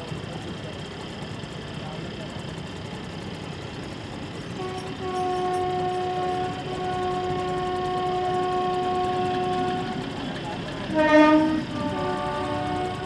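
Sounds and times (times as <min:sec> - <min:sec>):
rumble of passing train coaches: 0:00.0 - 0:13.0
train horn long note: 0:04.5 - 0:13.0.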